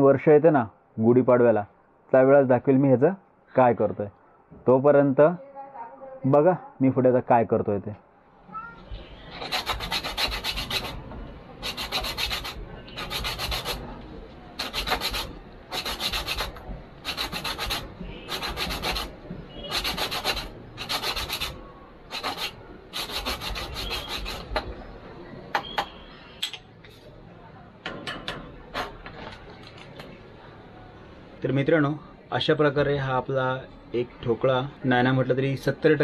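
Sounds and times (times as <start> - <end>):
sandpaper scratching on wood: 9.3 - 13.9, 14.6 - 24.7.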